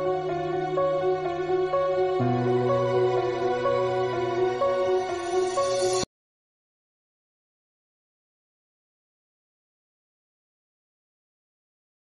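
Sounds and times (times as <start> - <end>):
slow melodic background music: 0.0 - 6.1.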